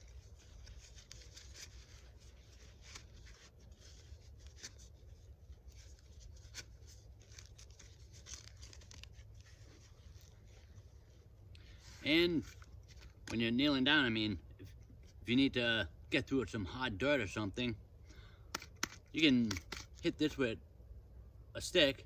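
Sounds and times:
clicks and rustles of handling: 0.0s - 11.2s, 12.4s - 13.4s, 18.1s - 20.2s.

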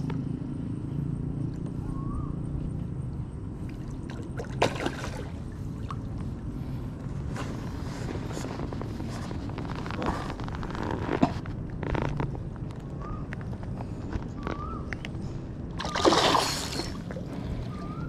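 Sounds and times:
steady low rumble: 0.0s - 18.0s
fish splashing in water: 3.6s - 6.2s, 15.8s - 18.0s.

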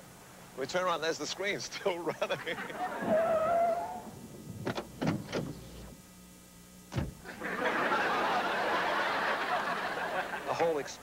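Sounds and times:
person laughing: 2.1s - 3.2s.

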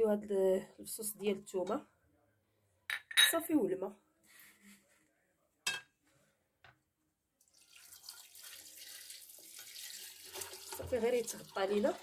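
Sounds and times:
water pouring onto beans: 7.4s - 12.0s.

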